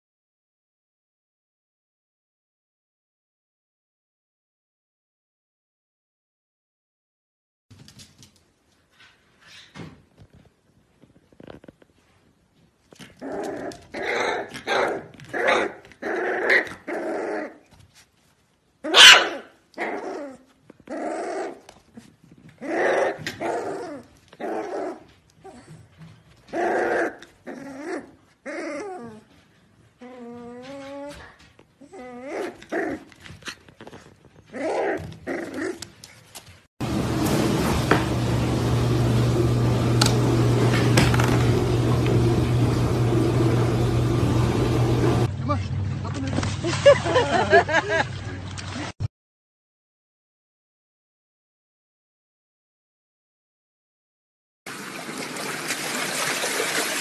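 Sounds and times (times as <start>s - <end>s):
puppy barking: 14.0s - 15.8s, 18.8s - 20.0s
puppy whining: 19.8s - 36.3s.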